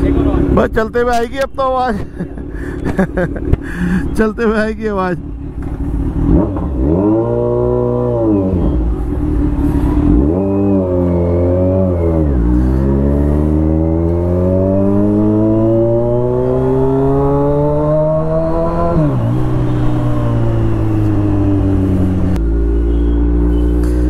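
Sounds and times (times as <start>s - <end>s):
motorcycle engine accelerating: 5.1s - 24.0s.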